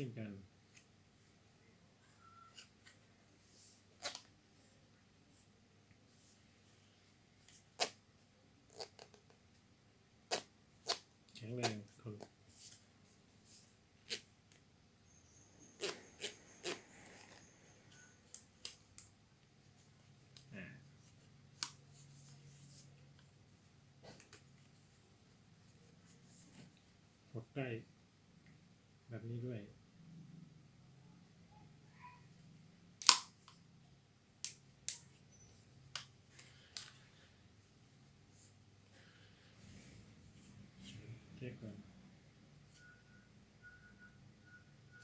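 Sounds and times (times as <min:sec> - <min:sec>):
headphones plastic clicks: 0:04.0 - 0:04.3, 0:33.0 - 0:33.6, 0:35.9 - 0:37.0.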